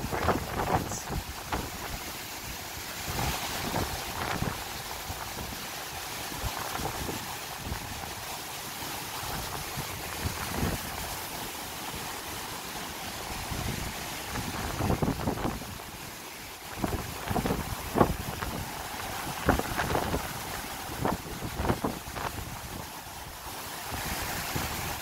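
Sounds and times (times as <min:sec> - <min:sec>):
wind buffeting microphone: 0:00.0 - 0:02.0, 0:03.0 - 0:05.6, 0:09.3 - 0:11.2, 0:13.4 - 0:15.9, 0:16.7 - 0:23.0
gusty wind rushing: 0:13.4 - 0:15.9, 0:16.7 - 0:23.0.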